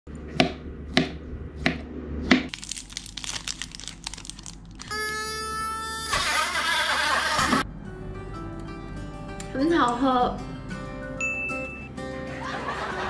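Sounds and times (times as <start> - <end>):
irregular crackling: 2.5 - 5.0.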